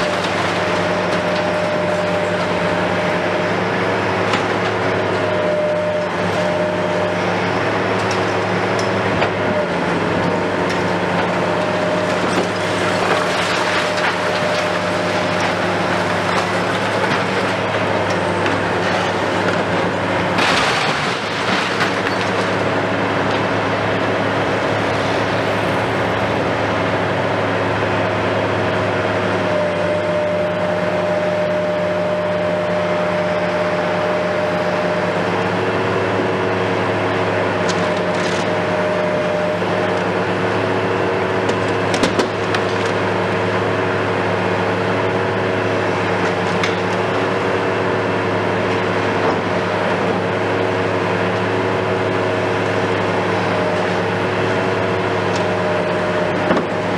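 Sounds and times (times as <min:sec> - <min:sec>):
diesel engine humming: 0:00.0 - 0:56.9
debris clattering down: 0:20.3 - 0:22.6.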